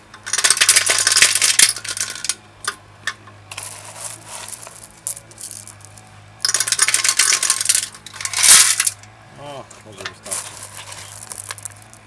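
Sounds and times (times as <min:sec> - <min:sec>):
pebbles clinking into metal tank: 0:00.2 - 0:02.4, 0:03.5 - 0:09.0, 0:10.0 - 0:12.0
stones rattling: 0:00.2 - 0:02.4, 0:03.5 - 0:09.0, 0:10.1 - 0:12.0.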